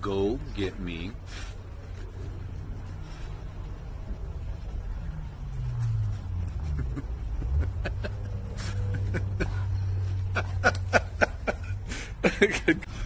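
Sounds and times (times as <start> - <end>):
steady low hum: 0.0 - 13.0
man laughing: 6.6 - 13.0.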